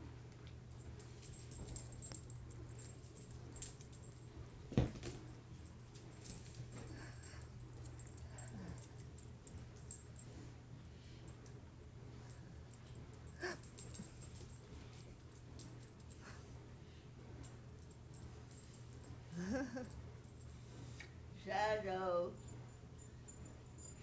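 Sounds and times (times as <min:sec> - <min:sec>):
steady low hum: 0:00.0 - 0:24.0
dog collar tags jingling: 0:00.7 - 0:10.2, 0:12.3 - 0:16.4, 0:22.7 - 0:24.0.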